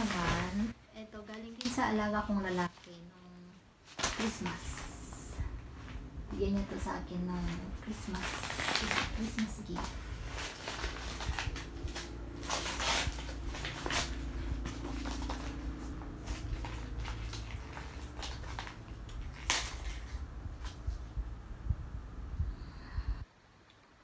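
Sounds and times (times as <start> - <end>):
wrapping paper crinkling: 0.0 - 3.0, 6.5 - 21.0.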